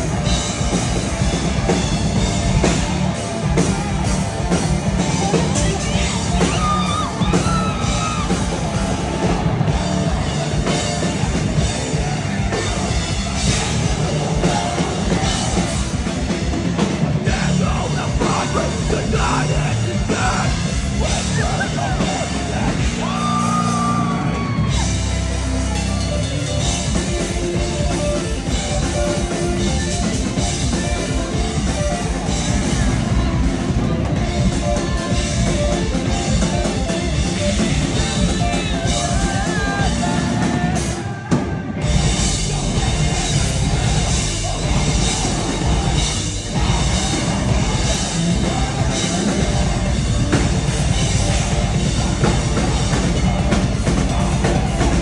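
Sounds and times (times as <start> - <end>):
drum kit: 0.0 - 55.0
electric guitar: 0.0 - 55.0
person yelling and singing: 5.0 - 9.3, 17.2 - 25.0, 37.9 - 50.3.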